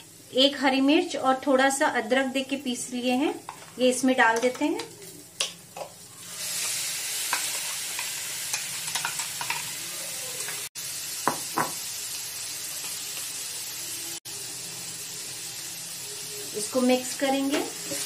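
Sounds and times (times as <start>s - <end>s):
food sizzling in a pan: 0.0s - 18.0s
steel bowl clicking and tapping: 7.3s - 9.7s.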